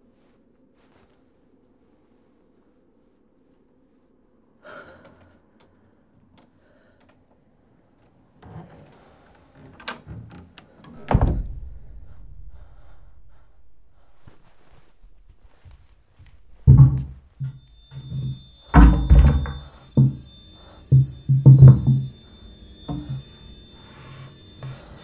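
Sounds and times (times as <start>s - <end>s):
sharp door click: 10.9s - 11.8s
heavy low door thud: 10.9s - 15.2s, 16.5s - 22.1s
low rumble: 10.9s - 18.7s.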